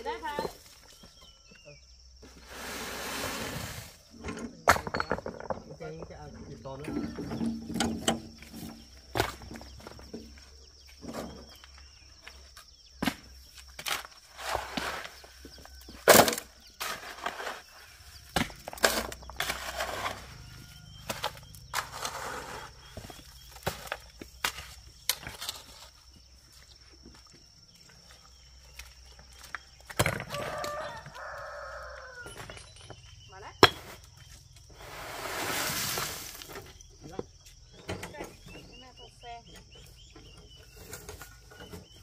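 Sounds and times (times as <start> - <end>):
rocks scraping: 2.2 - 10.1, 13.6 - 26.8, 33.6 - 37.3.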